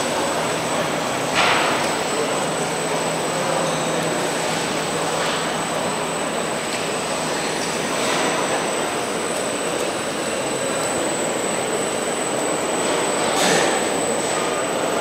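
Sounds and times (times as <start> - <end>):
mill whirring: 0.0 - 15.0.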